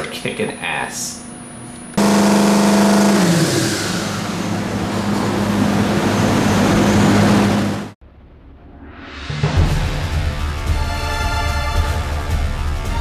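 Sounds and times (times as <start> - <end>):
engine running at high revs: 2.0 - 8.0.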